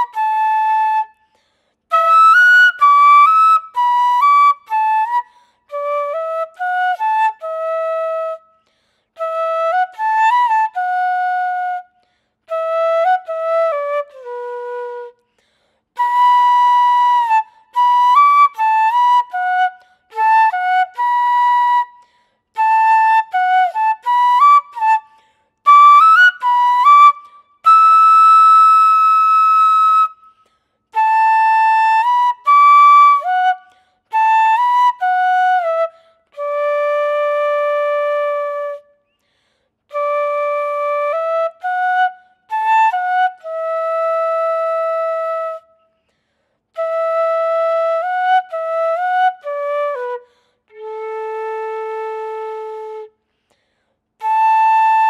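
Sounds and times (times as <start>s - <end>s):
bamboo flute melody: 0.0s - 39.2s, 39.9s - 46.0s, 46.7s - 53.2s, 54.2s - 55.0s.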